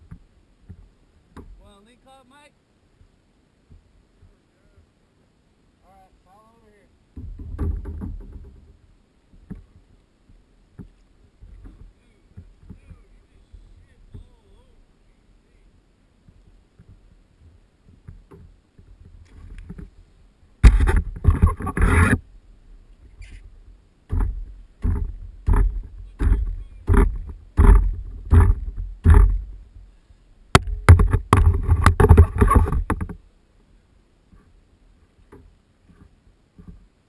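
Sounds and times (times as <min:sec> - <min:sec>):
net knocking on kayak: 0:20.6 - 0:22.1, 0:24.1 - 0:29.6, 0:30.6 - 0:33.2.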